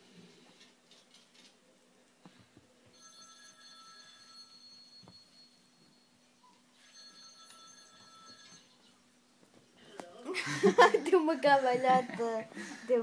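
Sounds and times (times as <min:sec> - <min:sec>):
high ringing tones: 0:02.9 - 0:09.9.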